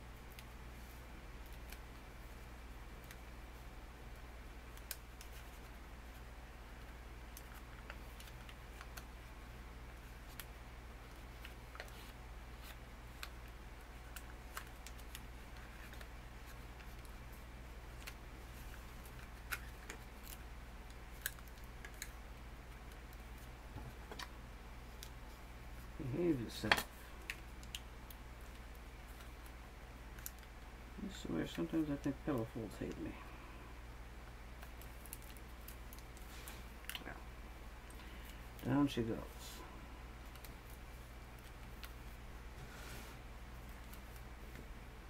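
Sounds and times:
paper being folded and creased: 14.0 - 17.2.

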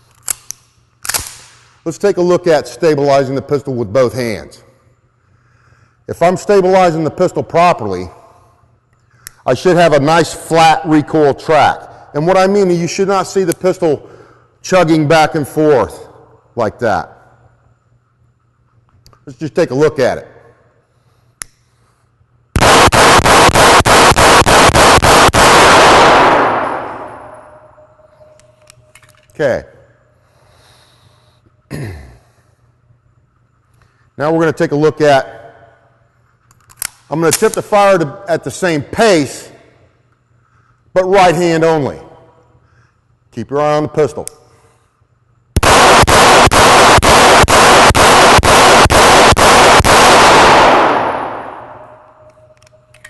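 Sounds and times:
pistol shots echoing indoors: 22.6 - 28.6, 45.6 - 53.0.

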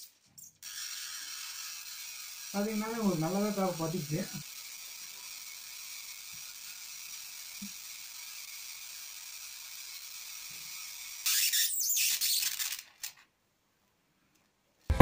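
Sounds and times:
high-voltage arc hissing: 1.4 - 4.6.

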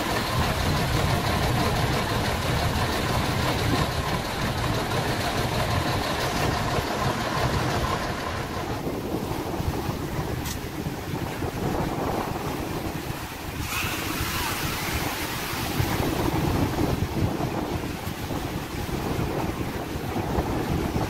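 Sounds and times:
surf washing up beach: 0.0 - 21.0
wave breaking: 0.0 - 21.0
wind buffeting microphone: 0.0 - 21.0.

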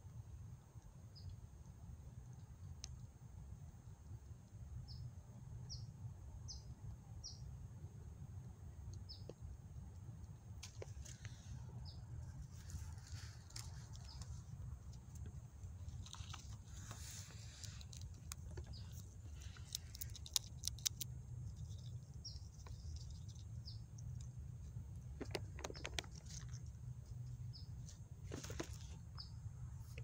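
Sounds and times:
teeth crunching a nut: 17.6 - 23.4.

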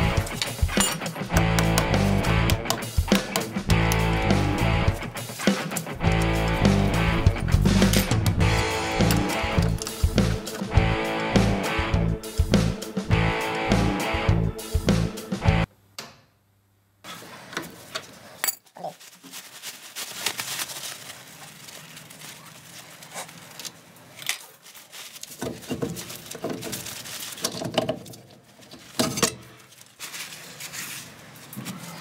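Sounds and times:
metallic clinks and knocks: 0.4 - 1.6.

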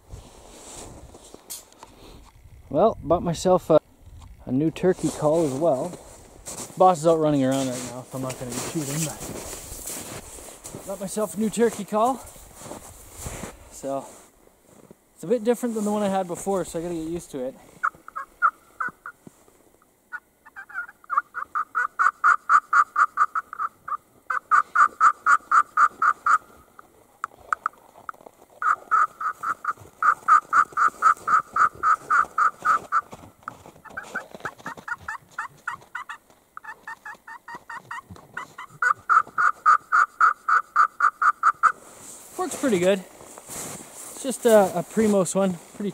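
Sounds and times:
turkey call high notes: 17.8 - 19.2, 20.1 - 26.6, 28.6 - 33.1, 35.1 - 41.8.

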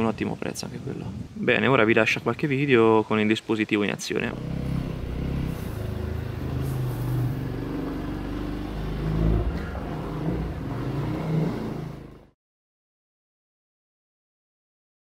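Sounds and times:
motorcycle engine running: 4.3 - 12.2.

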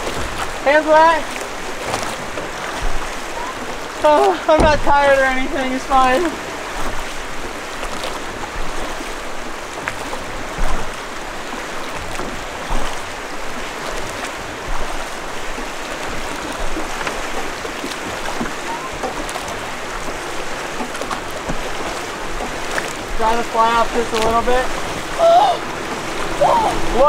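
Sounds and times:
river water rushing: 0.0 - 27.0
short knocks: 4.5 - 5.1.

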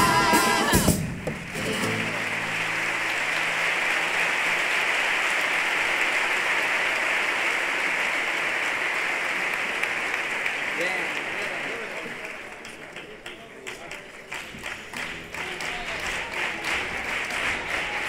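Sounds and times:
band music: 0.0 - 3.7
audience applauding: 0.0 - 18.0.

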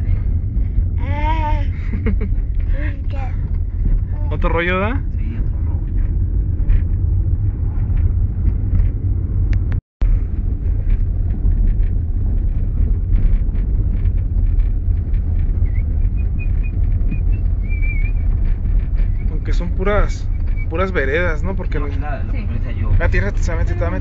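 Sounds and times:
car engine and road noise: 0.0 - 24.0
wind noise on microphone: 0.0 - 24.0.

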